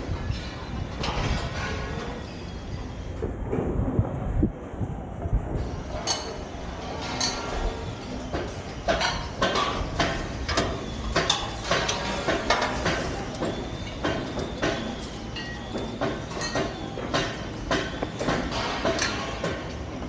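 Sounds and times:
low rumble: 3.1s - 5.9s.

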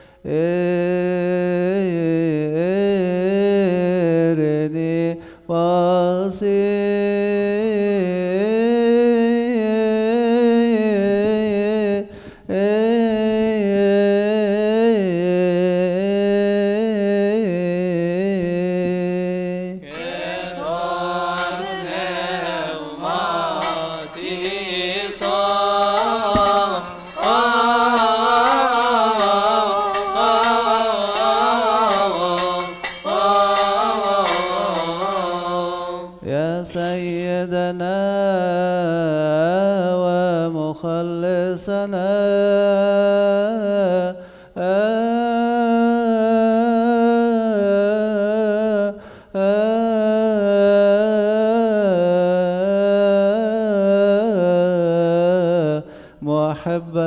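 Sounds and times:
man chanting: 0.2s - 57.0s
group of voices chanting: 19.8s - 36.2s.

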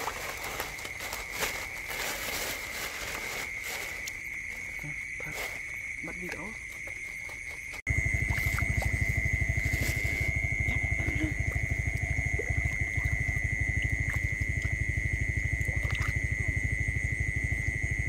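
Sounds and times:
constant high-pitched tone: 0.0s - 18.0s
fast low throbbing: 7.9s - 18.0s.

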